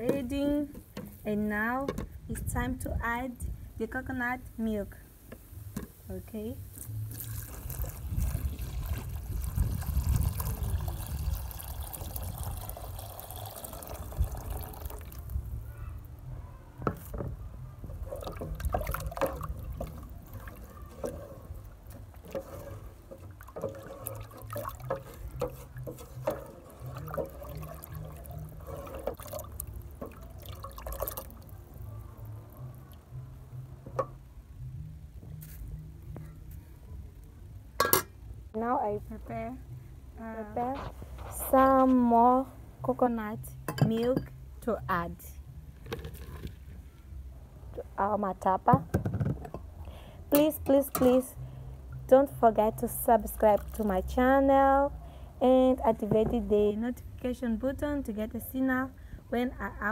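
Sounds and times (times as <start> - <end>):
liquid pouring into a pot: 7.1 - 15.4, 18.0 - 31.6
spoon stirring sloshing mixture: 17.8 - 31.5.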